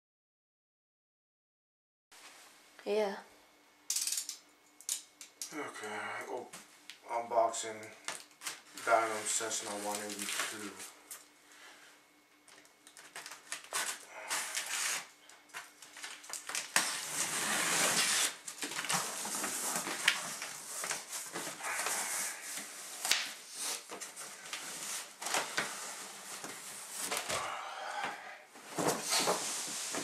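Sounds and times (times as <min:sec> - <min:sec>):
packing tape tearing: 0:08.1 - 0:10.8, 0:12.5 - 0:27.4.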